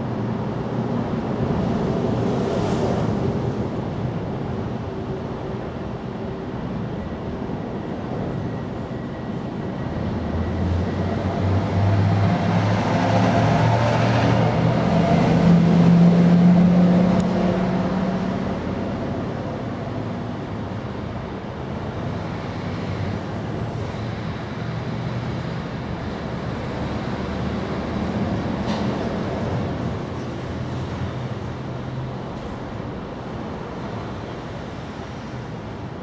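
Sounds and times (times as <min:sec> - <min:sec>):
traffic noise: 0:00.0 - 0:36.0
vehicle engine hum passing: 0:10.4 - 0:19.2.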